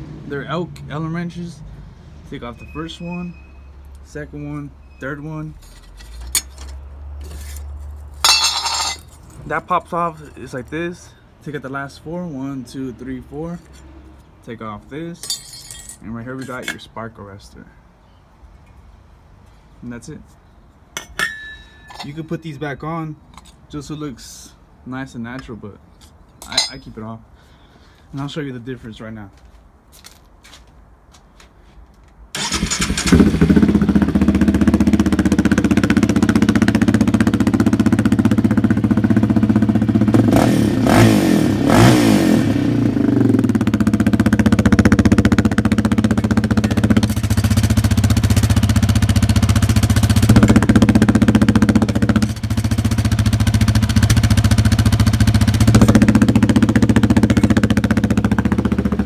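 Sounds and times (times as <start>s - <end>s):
quad engine starting and idling: 32.4s - 40.2s.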